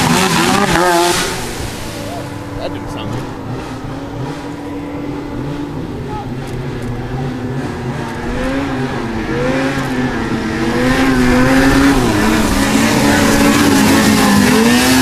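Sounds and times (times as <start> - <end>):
snowmobile engine running hard: 0.0 - 15.0.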